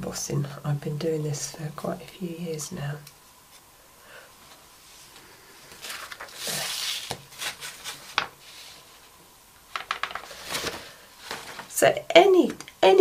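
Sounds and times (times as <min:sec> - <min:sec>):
paper rustling and sliding: 0:04.5 - 0:09.1, 0:09.8 - 0:11.7
craft tools tapping on desk: 0:09.7 - 0:10.3.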